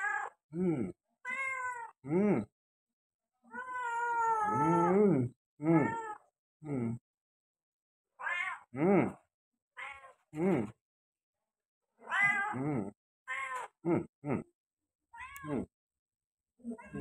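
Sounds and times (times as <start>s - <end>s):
cat meowing: 0.0s - 0.4s, 1.2s - 1.9s, 3.5s - 4.9s, 5.7s - 6.2s, 8.2s - 8.7s, 9.8s - 10.2s, 12.0s - 12.6s, 13.3s - 13.7s, 15.1s - 15.7s.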